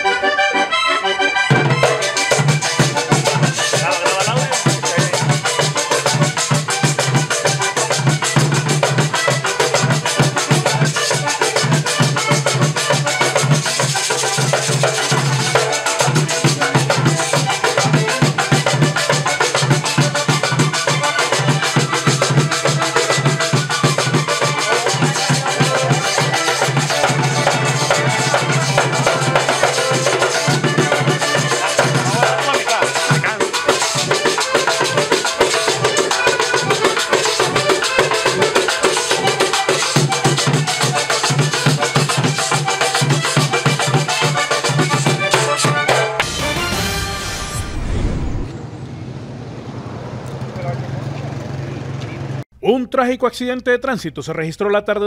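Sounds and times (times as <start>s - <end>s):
accordion playing lively tune: 0.0s - 47.6s
steady percussion: 1.4s - 48.6s
low bass: 46.3s - 48.6s.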